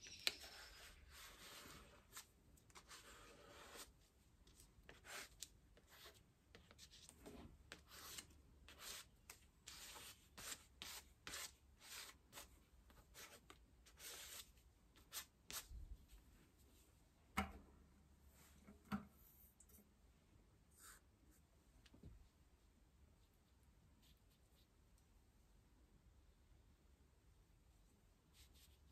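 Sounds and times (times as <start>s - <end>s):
paintbrush brushing on paper: 0.3s - 7.1s, 7.7s - 9.1s, 9.7s - 15.7s, 20.7s - 21.4s, 28.3s - 28.9s.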